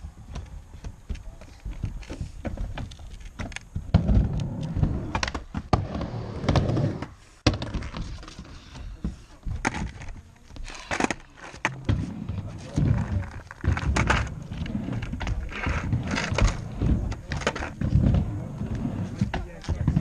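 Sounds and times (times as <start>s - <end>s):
skateboard wheels rumbling on ramp: 0.0s - 20.0s
skateboards clacking on ramp: 0.0s - 20.0s.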